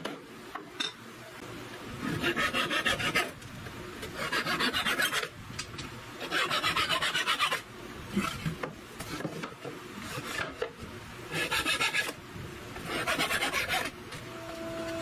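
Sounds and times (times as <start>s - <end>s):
saw rasping through wood: 2.0s - 3.4s, 4.2s - 5.3s, 6.2s - 7.6s, 11.3s - 12.2s, 12.8s - 13.9s.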